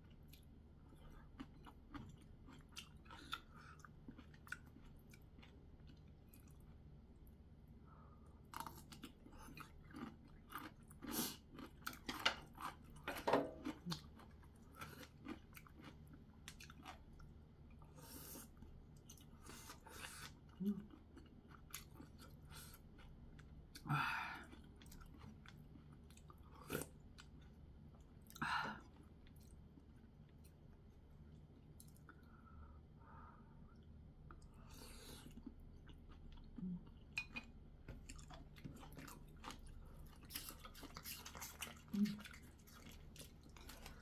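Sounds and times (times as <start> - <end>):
chewing with wet mouth clicks: 0.1 - 7.3, 8.5 - 17.8, 24.4 - 32.3, 33.7 - 44.0.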